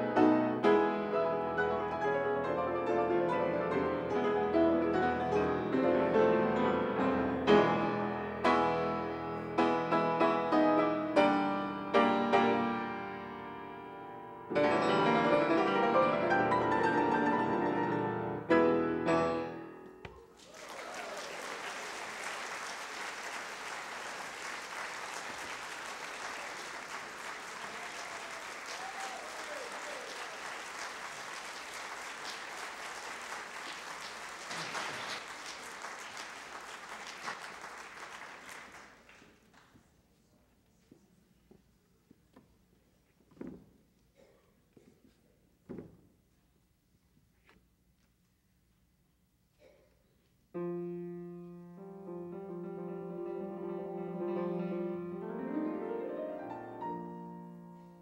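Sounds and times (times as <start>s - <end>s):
classical piano duet: 0.0s - 19.8s, 50.6s - 58.0s
audience applauding: 20.1s - 39.8s.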